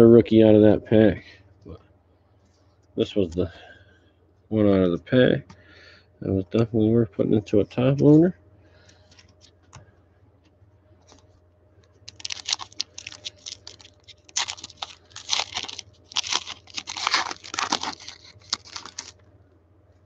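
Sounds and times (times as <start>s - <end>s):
foil wrapper tearing and crinkling: 12.1s - 19.2s.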